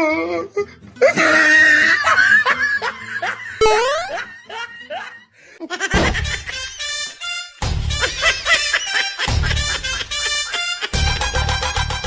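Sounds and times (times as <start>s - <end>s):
high-pitched laughter with squeals: 1.0s - 5.1s.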